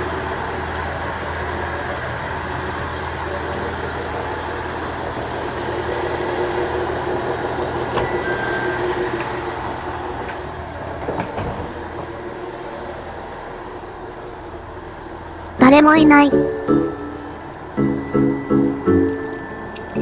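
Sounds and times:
railcar diesel engine idling: 0:00.0 - 0:20.0.

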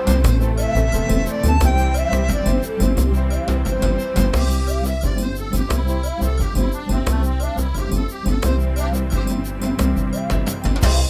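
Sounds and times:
music with a steady beat: 0:00.0 - 0:11.0.

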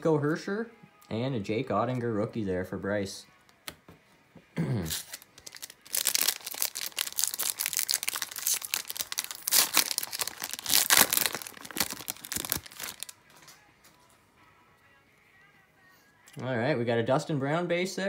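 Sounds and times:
foil wrapper tearing and crinkling: 0:04.8 - 0:13.2.

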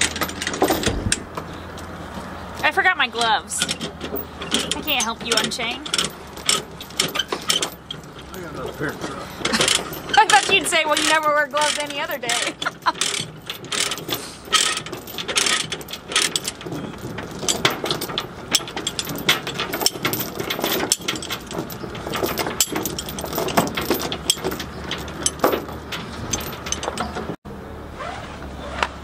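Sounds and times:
steel chains clanking: 0:00.0 - 0:27.4.

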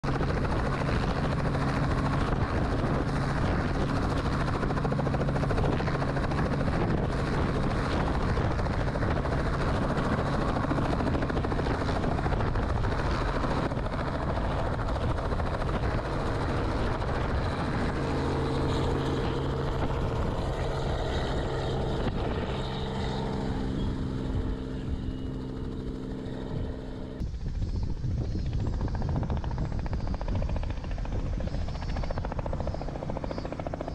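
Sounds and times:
helicopter rotor and engine: 0:00.0 - 0:33.9.

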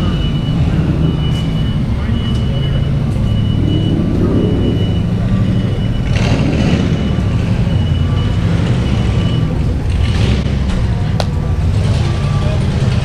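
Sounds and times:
vehicle engine rumbling: 0:00.0 - 0:13.0
faint high tone: 0:02.0 - 0:06.1.

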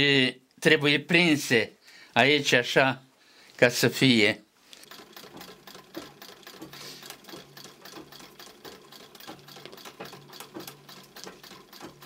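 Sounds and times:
sewing machine clattering: 0:04.8 - 0:12.0
sewing machine low hum: 0:04.8 - 0:12.0.

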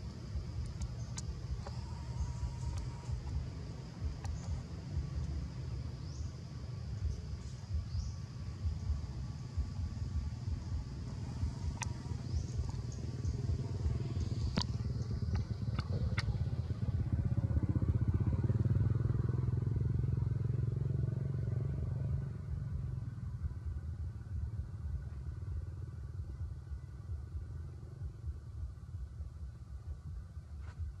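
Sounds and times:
passing vehicle engine rumble: 0:00.0 - 0:31.0
sharp clicks: 0:00.6 - 0:03.4, 0:04.2 - 0:04.6.

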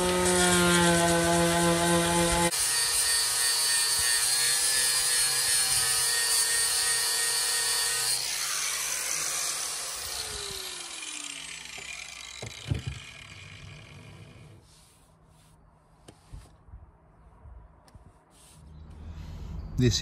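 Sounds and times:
electric sander on steel: 0:00.0 - 0:14.6
sander motor winding down: 0:08.0 - 0:14.6.

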